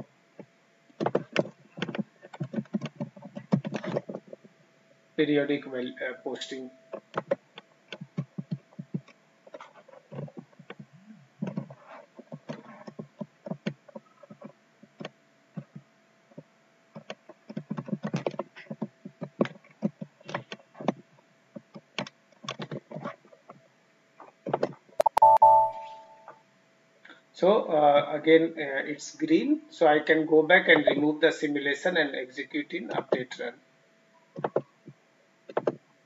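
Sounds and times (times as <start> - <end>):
faint steady hum: 0.0 - 36.0
keyboard typing: 25.0 - 26.2
short beep: 25.0 - 26.3.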